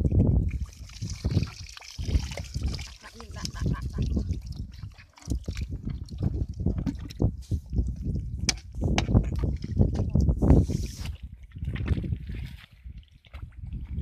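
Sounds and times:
water dripping: 0.2s - 7.2s.

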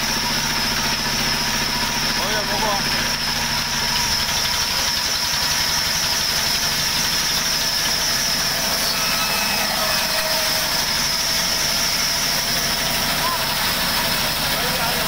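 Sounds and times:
band saw mill cutting plank: 0.0s - 15.0s
high-pitched whine: 3.6s - 15.0s.

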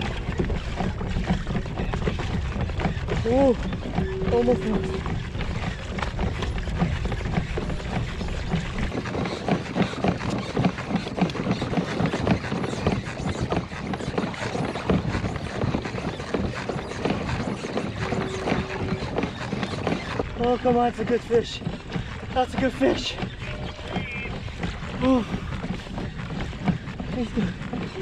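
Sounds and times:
low rumble: 1.5s - 9.1s, 17.8s - 20.4s.

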